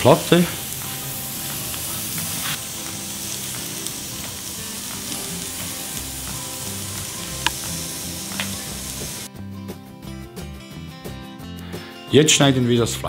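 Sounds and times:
meat sizzling on a griddle: 0.0s - 9.3s.

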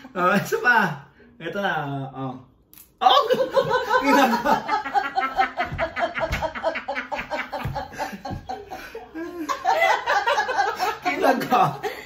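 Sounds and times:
women laughing: 3.1s - 12.0s.

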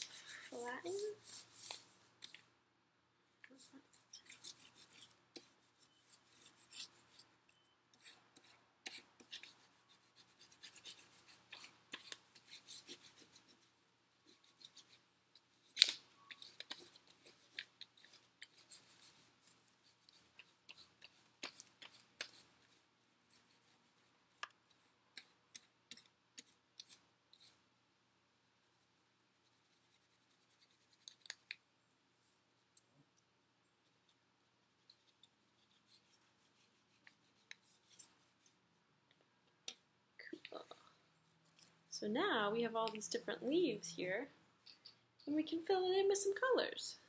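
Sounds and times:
crayon scratching on paper: 0.0s - 2.0s, 3.5s - 7.3s, 7.9s - 15.0s, 15.6s - 27.6s, 28.7s - 31.5s, 34.8s - 38.6s.

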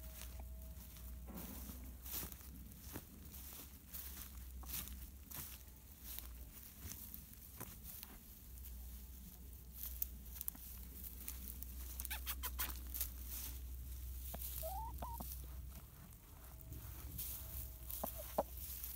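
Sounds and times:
rustling in grass: 0.0s - 18.9s
hen call: 11.9s - 12.9s, 14.3s - 15.3s, 17.8s - 18.6s.

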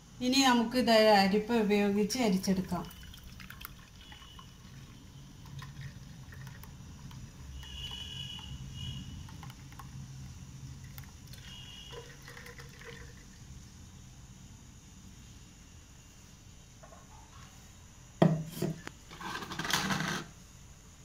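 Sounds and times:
juice pouring into sieve: 2.7s - 13.7s.

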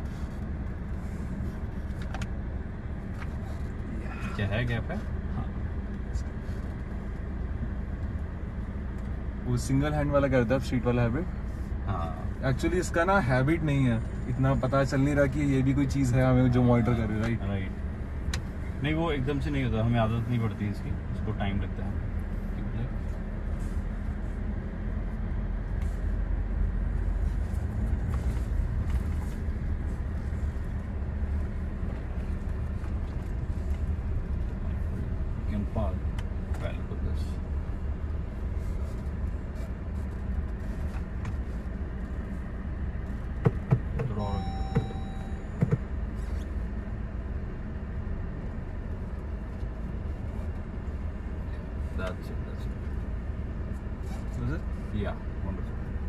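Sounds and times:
car engine and tyre rumble: 0.0s - 56.0s.

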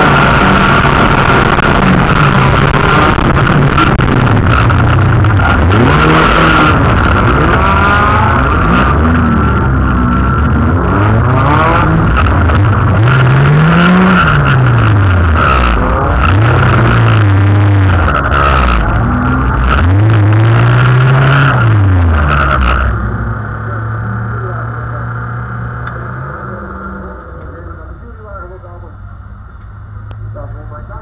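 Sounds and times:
race car engine revving: 0.0s - 31.0s.

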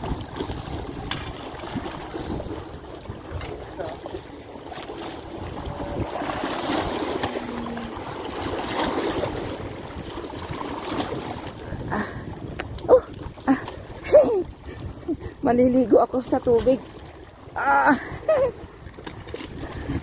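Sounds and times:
seawater washing over rocks: 0.0s - 14.8s
wind buffeting microphone: 0.0s - 20.0s.

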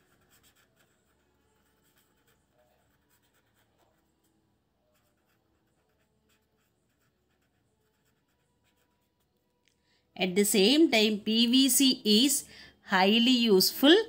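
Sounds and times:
pen writing on paper: 0.0s - 4.1s, 4.9s - 9.4s.

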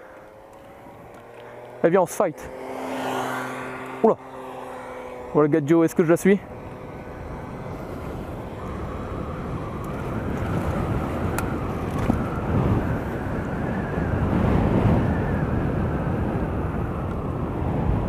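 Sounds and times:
wind buffeting microphone: 6.2s - 18.0s.

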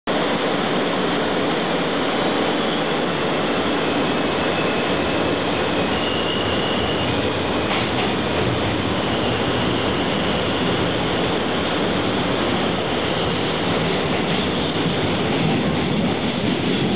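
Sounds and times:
subway wheel and track noise: 0.1s - 16.9s
faint high whine: 2.4s - 7.4s.

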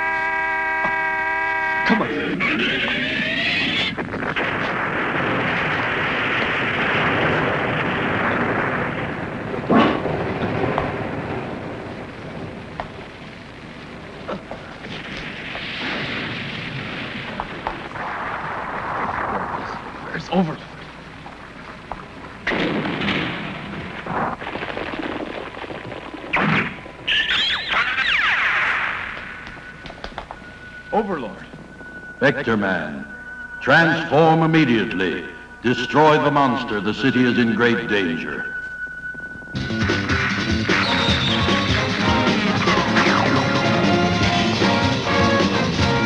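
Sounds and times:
loud blasts: 0.0s - 38.6s, 39.6s - 46.0s
rushing rumble: 1.0s - 27.7s
rising whistle: 27.1s - 46.0s.

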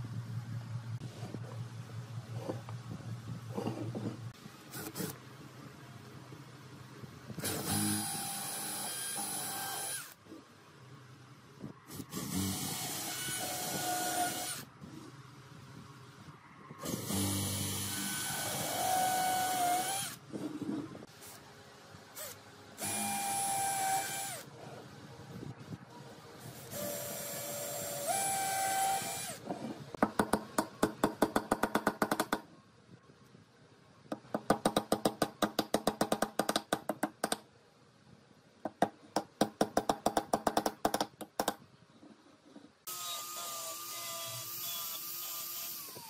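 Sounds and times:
cordless drill boring into wood: 7.4s - 10.2s, 12.1s - 14.6s, 42.9s - 46.0s.

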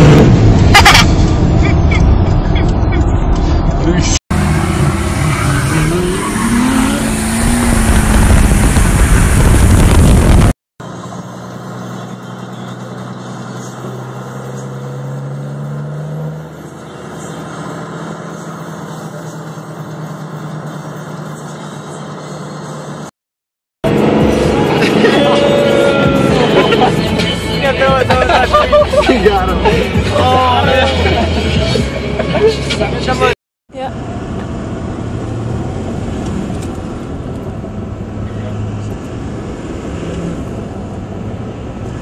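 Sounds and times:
diesel engine revving hard: 4.3s - 10.5s
diesel engine running inside cab: 9.8s - 15.3s.

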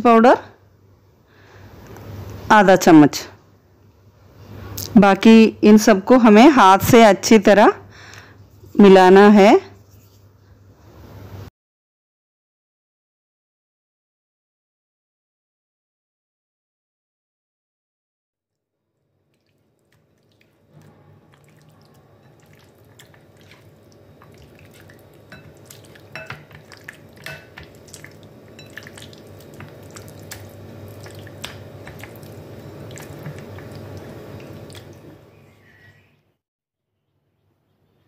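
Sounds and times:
wet squelching of kneaded chicken: 19.3s - 35.2s.

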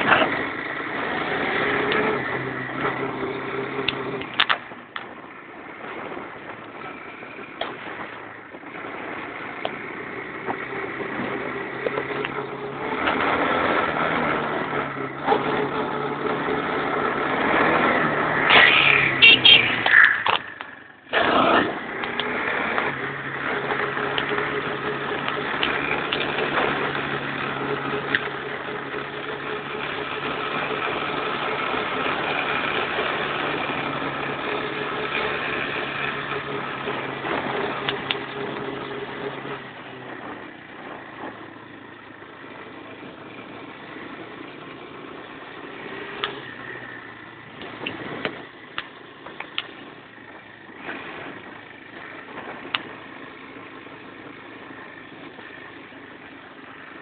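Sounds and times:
quad bike engine running: 0.0s - 57.0s.

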